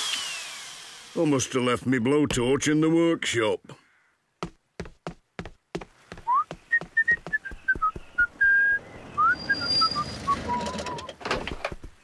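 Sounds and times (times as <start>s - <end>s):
walking footsteps: 4.4s - 8.5s, 11.4s - 12.0s
man whistling a tune: 6.3s - 11.1s.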